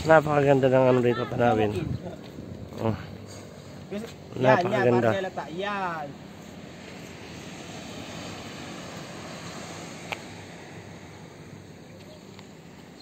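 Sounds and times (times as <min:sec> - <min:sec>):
wind on microphone: 0:01.3 - 0:03.3.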